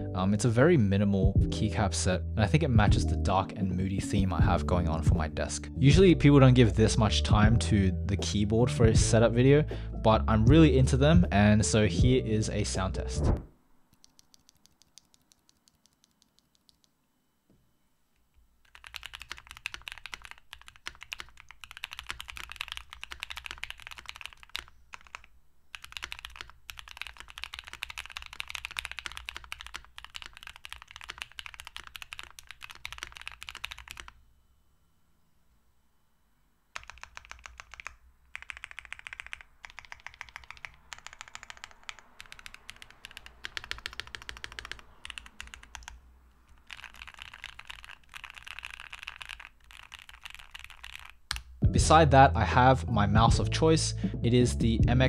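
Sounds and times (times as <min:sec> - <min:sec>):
mechanical keyboard typing: 0:13.9 - 0:16.9, 0:18.6 - 0:34.2, 0:36.8 - 0:51.5.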